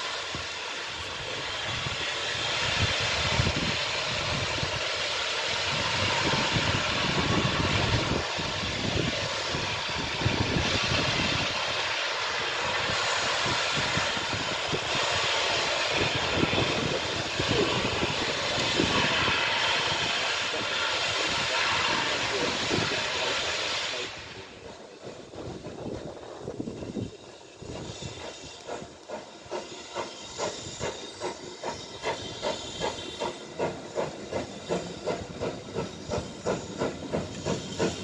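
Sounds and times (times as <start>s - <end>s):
steam locomotive roar: 0.0s - 38.0s
wind gusting on microphone: 0.2s - 4.8s, 5.5s - 11.9s, 12.6s - 23.3s, 24.1s - 28.9s.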